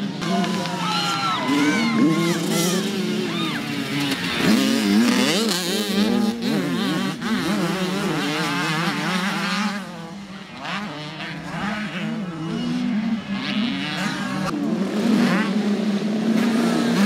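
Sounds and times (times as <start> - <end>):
dirt bike engines racing: 0.0 - 17.0.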